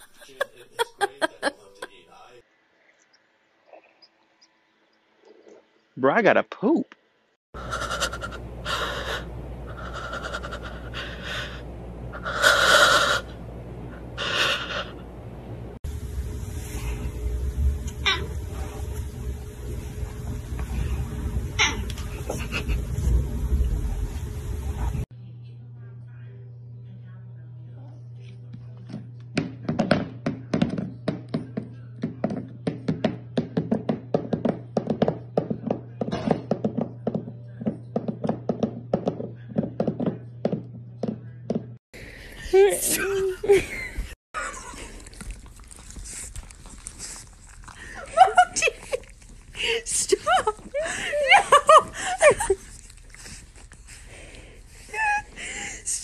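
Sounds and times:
low steady hum: 7.6 - 29.3
steady low hum: 7.6 - 56.0.

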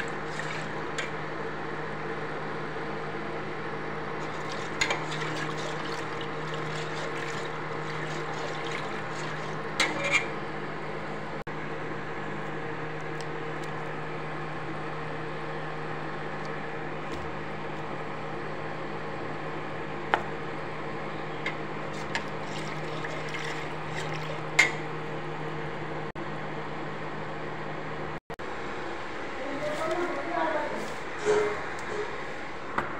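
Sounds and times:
pot simmering: 0.0 - 3.0, 3.7 - 12.3, 20.4 - 25.4
cooling fan running: 0.0 - 32.9
induction cooktop humming: 0.0 - 32.9.

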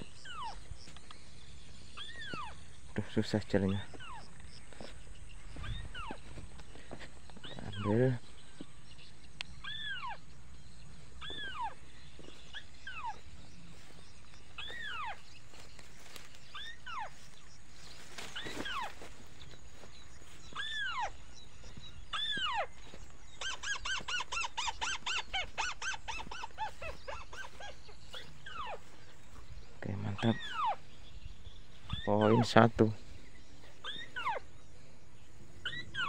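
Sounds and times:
rail bird squeaky calls: 0.0 - 6.5, 7.3 - 34.8, 35.5 - 36.0.

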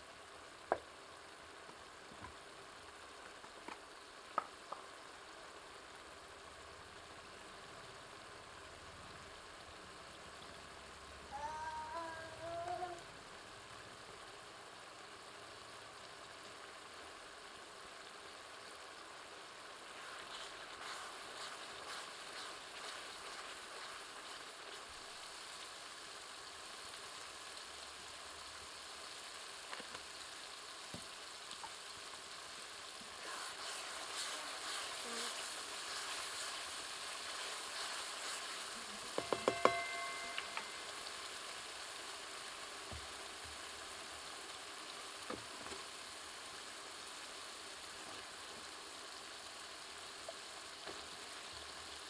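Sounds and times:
liquid sizzling and bubbling: 0.0 - 52.0
pan struck with metallic ring: 39.2 - 41.0.

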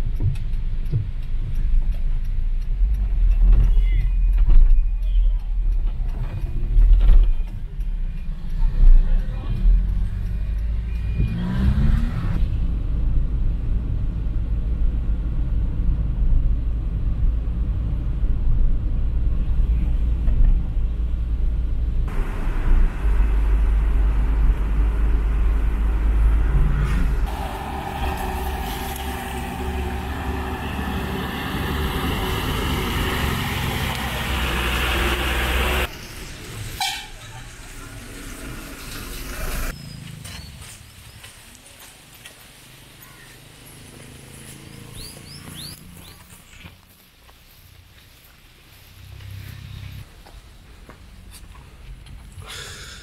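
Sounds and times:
car engine and road rumble: 0.0 - 53.0.

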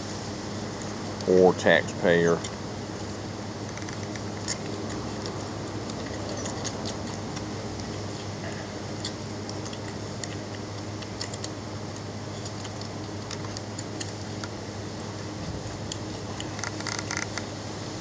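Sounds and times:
steady low hum: 0.0 - 18.0
puppies suckling: 3.6 - 17.4.

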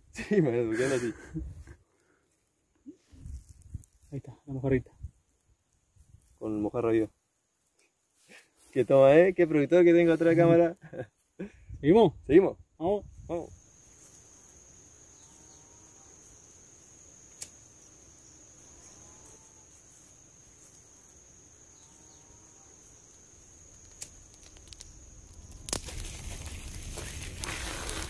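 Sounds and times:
faint lower insect call: 0.0 - 28.0
insects trilling: 0.1 - 28.0
crackling rustling noise: 1.6 - 6.6, 22.8 - 28.0.

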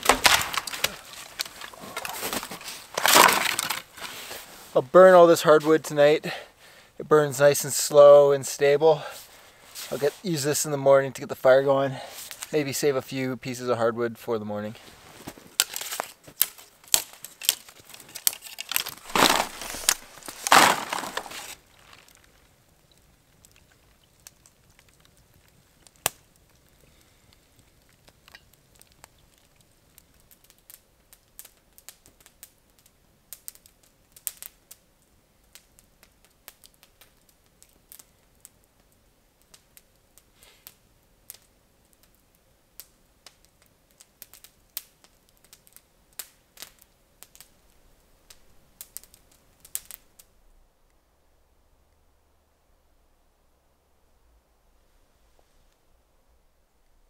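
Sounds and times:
firewood sticks snapping: 0.0 - 4.3, 15.2 - 22.5
campfire crackling: 0.0 - 57.0.

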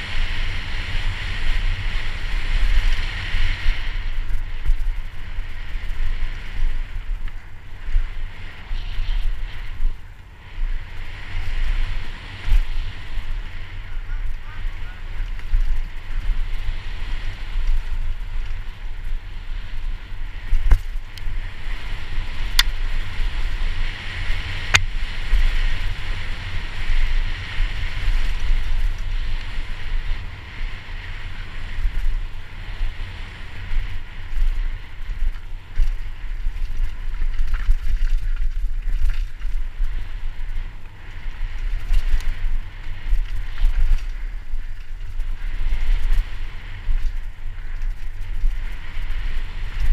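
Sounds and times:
mountain bike rattling on dirt: 0.0 - 49.9
wind buffeting microphone: 0.0 - 49.9
bike knocking on bumps: 14.0 - 23.6.

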